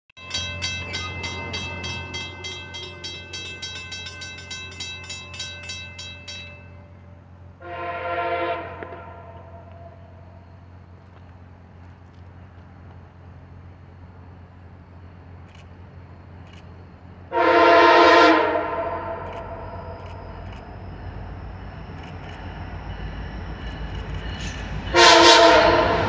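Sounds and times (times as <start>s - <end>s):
bell ringing rapidly: 0.2s - 6.9s
low locomotive rumble: 0.2s - 26.0s
locomotive air horn blast: 7.6s - 10.0s, 17.3s - 20.0s, 24.9s - 26.0s.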